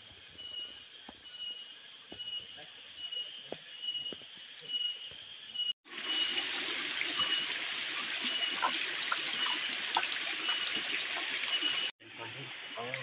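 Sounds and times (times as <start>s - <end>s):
flowing stream: 5.8s - 13.0s.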